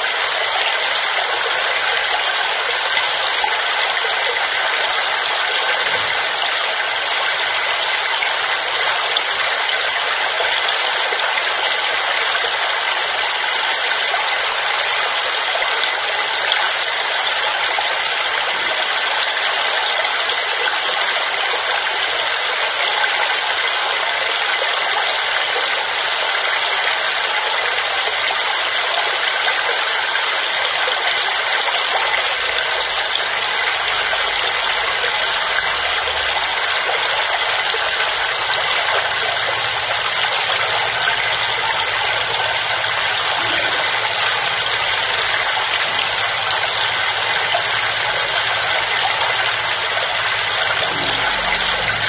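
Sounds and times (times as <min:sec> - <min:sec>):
waterfall rushing: 0:29.9 - 0:52.0.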